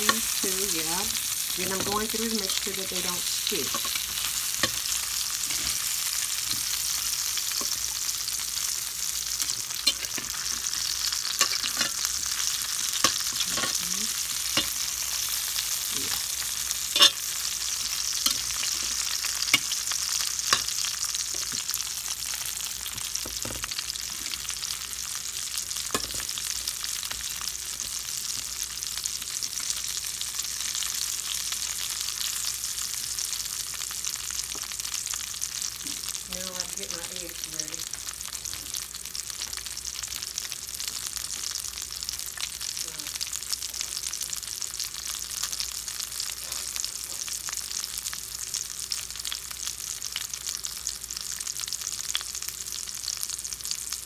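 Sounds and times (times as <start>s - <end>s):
potatoes sizzling in oil: 0.0s - 54.0s
metal utensil scraping pan: 2.9s - 6.8s, 9.4s - 17.3s, 18.1s - 19.8s.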